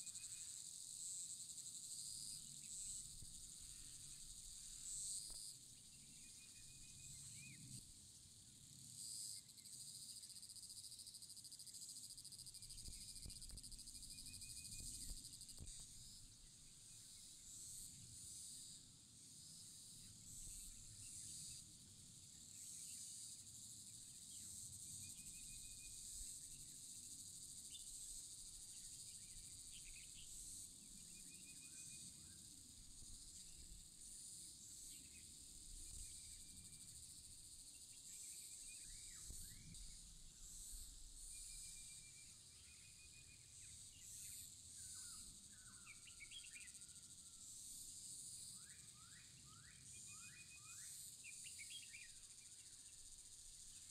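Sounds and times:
high insect chorus: 0.0s - 53.9s.

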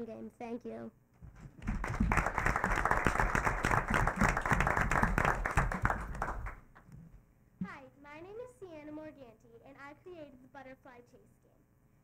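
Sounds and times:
small audience clapping: 1.4s - 6.9s.

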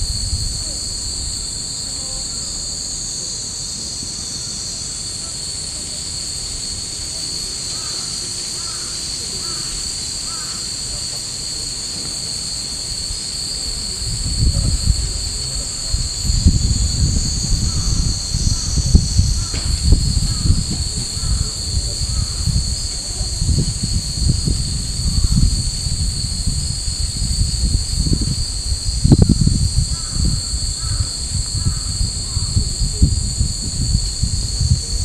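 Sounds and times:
low rumbles on microphone: 0.0s - 4.2s, 11.5s - 35.0s
cicadas droning: 0.0s - 35.0s.

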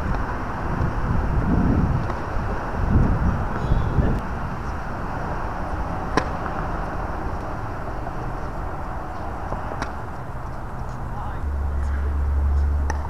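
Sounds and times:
outdoor background noise: 0.0s - 13.0s
tennis racket hitting ball: 2.0s - 2.3s, 5.7s - 10.9s, 12.6s - 13.0s.

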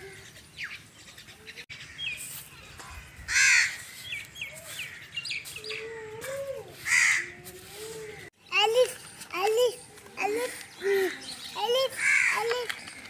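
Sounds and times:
small birds chirping: 0.0s - 6.1s, 7.8s - 13.0s
crow cawing: 3.2s - 3.8s, 6.9s - 7.3s, 12.0s - 12.6s.

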